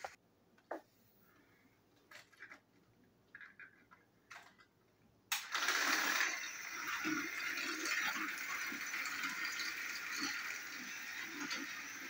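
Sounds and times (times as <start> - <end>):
toy trains whirring rattle: 5.3 - 12.0.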